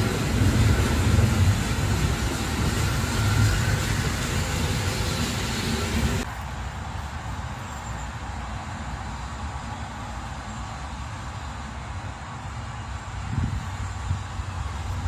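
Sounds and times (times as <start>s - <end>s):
train wagons rumbling on rails: 0.0s - 9.1s.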